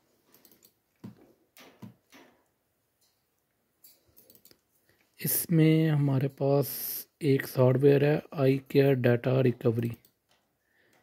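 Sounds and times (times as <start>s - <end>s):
computer mouse clicks: 0.3s - 1.2s, 4.2s - 4.6s.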